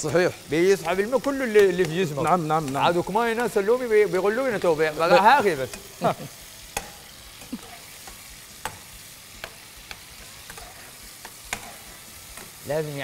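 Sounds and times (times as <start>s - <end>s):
tomatoes sizzling in frying pan: 0.0s - 13.0s
metal spoon scraping pan: 6.8s - 12.6s.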